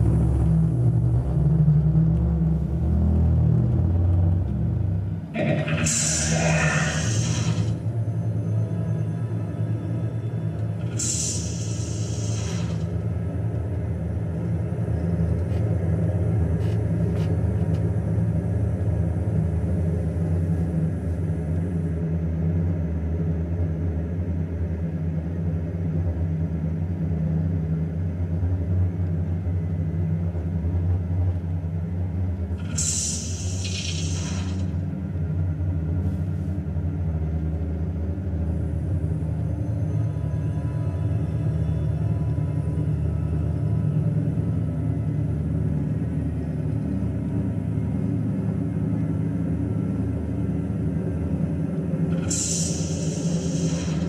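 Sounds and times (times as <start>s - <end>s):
low droning rumble: 0.0s - 24.9s, 25.6s - 54.0s.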